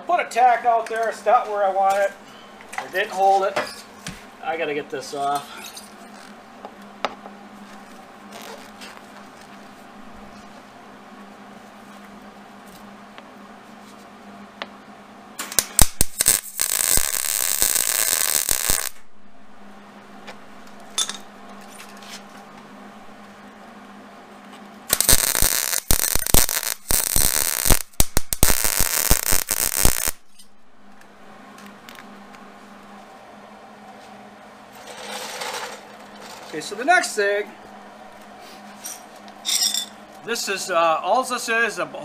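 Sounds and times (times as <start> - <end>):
steady low hum: 0.0 - 42.0
welder arc crackling: 7.6 - 9.9, 15.4 - 19.1, 24.9 - 33.1.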